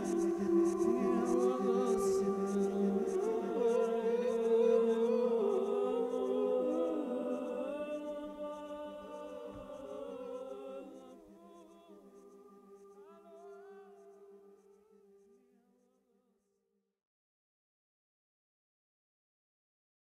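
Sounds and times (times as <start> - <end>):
choir-like held vocal notes: 0.0 - 14.2.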